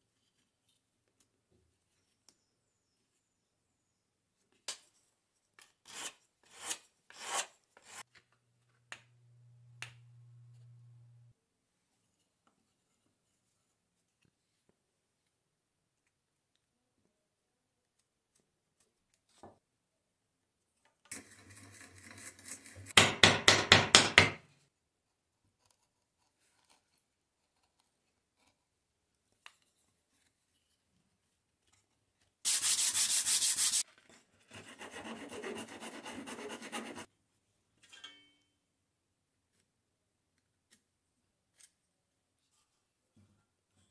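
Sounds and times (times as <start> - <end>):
hand tool scraping wood: 5.8 - 8.0, 21.1 - 23.0
rasping strokes on wood: 34.5 - 37.1.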